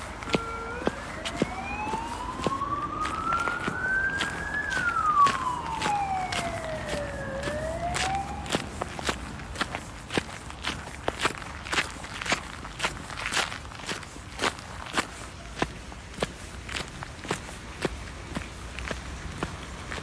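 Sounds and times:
emergency siren wailing: 0:00.0 - 0:09.5
footsteps on gravel: 0:00.0 - 0:20.0.

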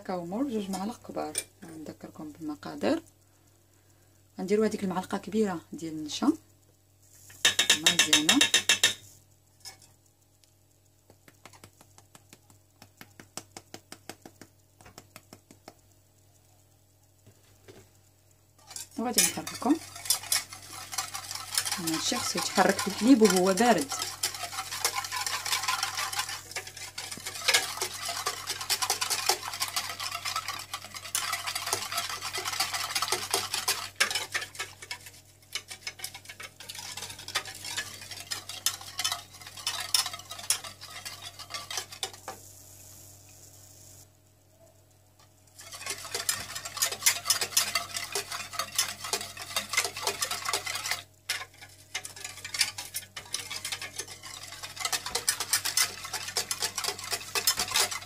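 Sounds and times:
whisk scraping metal saucepan: 0:07.4 - 0:09.0, 0:18.6 - 0:42.4, 0:45.6 - 0:58.0.

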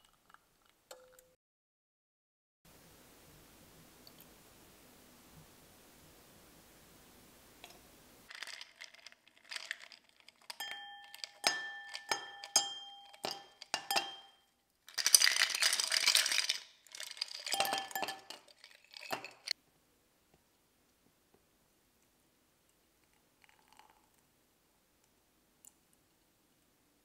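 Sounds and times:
ice clattering into glass: 0:08.3 - 0:19.6
ice cubes clinking in glass: 0:08.3 - 0:19.6.

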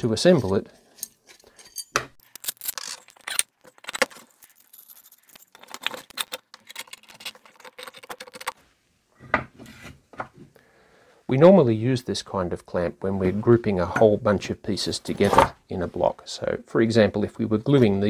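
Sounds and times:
metal rods clinking and scraping: 0:00.0 - 0:08.6.

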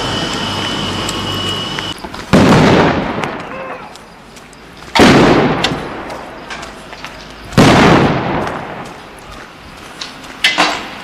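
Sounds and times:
loud explosive blasts: 0:02.0 - 0:03.5, 0:04.9 - 0:06.1, 0:07.5 - 0:08.8.

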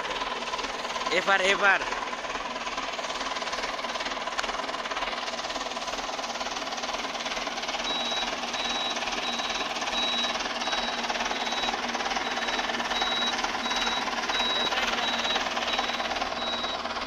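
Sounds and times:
tractor diesel engine running: 0:00.0 - 0:17.0
high beeping indicator buzzer: 0:07.9 - 0:16.8.

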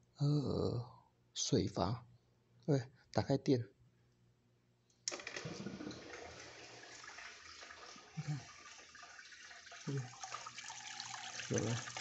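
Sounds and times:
water rushing into aquarium: 0:05.1 - 0:12.0.

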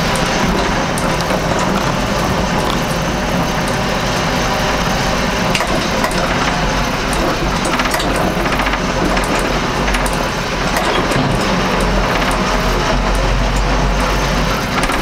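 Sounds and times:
tractor diesel engine running: 0:00.0 - 0:15.0
short rattling clicks: 0:05.5 - 0:15.0.

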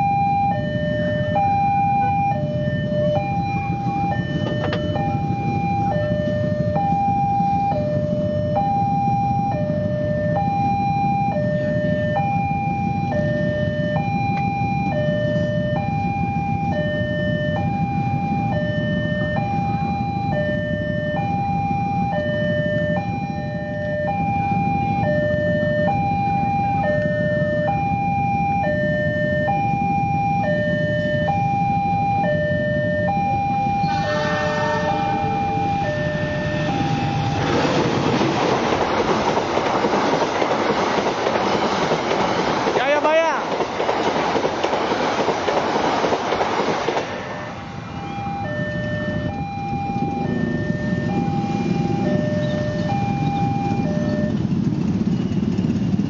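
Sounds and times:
level crossing alarm ding-dong: 0:00.0 - 0:09.6, 0:10.3 - 0:37.4, 0:47.8 - 0:54.5
train rushing past: 0:33.6 - 0:56.0
train horn: 0:33.8 - 0:37.4.

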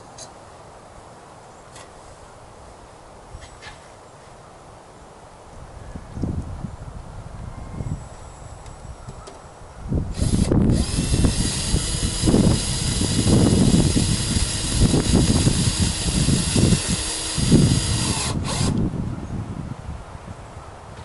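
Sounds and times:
cordless drill whining: 0:10.1 - 0:18.8.

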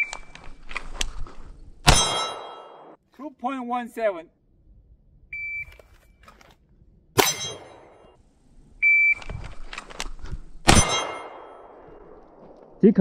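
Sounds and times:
pistol shots ringing steel: 0:01.9 - 0:03.0, 0:07.2 - 0:08.1, 0:10.7 - 0:11.8.

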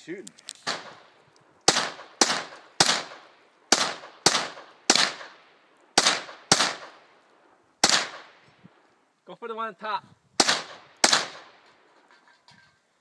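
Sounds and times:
rifle shots with echo: 0:00.6 - 0:07.2, 0:07.8 - 0:08.5, 0:10.4 - 0:11.9.

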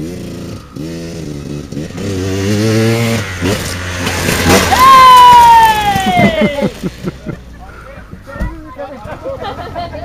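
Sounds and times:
dirt bike engine accelerating: 0:00.0 - 0:07.7.

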